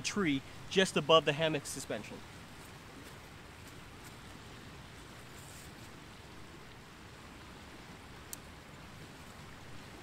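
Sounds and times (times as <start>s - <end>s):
soft high rustle: 4.9s - 6.0s.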